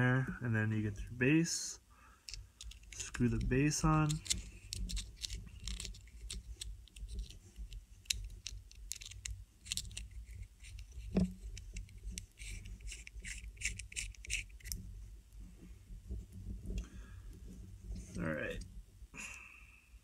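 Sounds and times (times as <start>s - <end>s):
low steady hum: 0.0s - 20.0s
small metal clicks and scratches: 2.2s - 15.4s.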